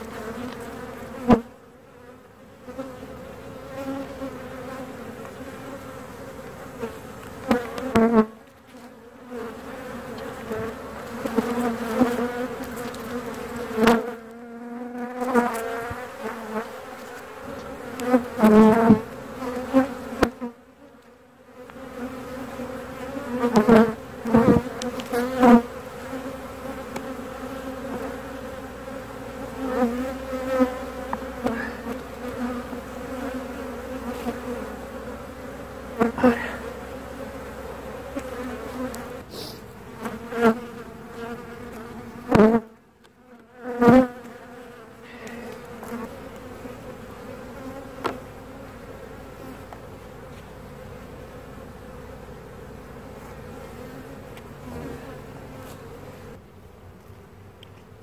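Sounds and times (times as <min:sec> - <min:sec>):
bees buzzing: 0:00.0 - 0:58.0
hive tool knocking wooden frames: 0:48.0 - 0:48.2.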